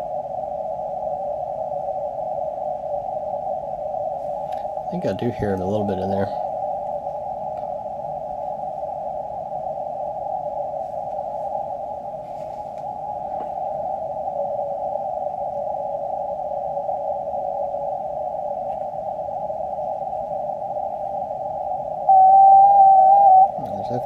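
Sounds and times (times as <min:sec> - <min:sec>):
radio band noise hiss: 0:04.3 - 0:06.6, 0:22.1 - 0:24.0.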